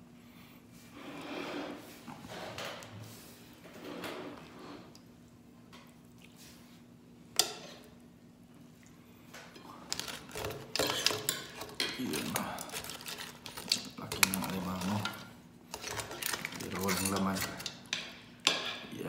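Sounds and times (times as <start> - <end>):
clinking and scraping in pot: 7.4 - 7.9, 9.6 - 18.9.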